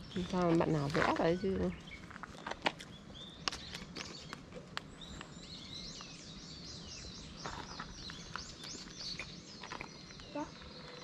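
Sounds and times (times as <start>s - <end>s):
birds calling with high notes: 0.0s - 11.0s.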